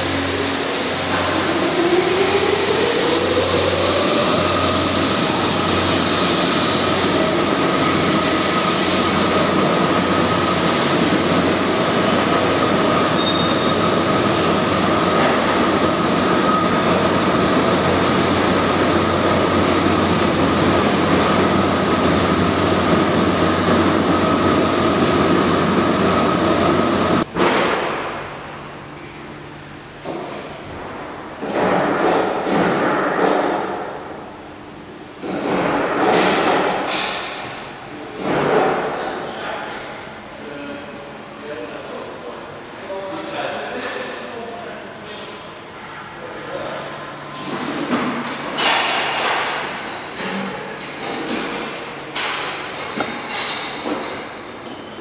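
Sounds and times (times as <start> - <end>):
high machine whine: 0.0 - 27.3
machine hum: 0.0 - 27.3.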